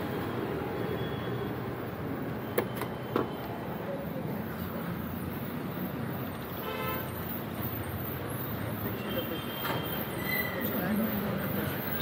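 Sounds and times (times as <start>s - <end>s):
road traffic: 0.0s - 12.0s
vehicle horn toot: 6.6s - 7.1s.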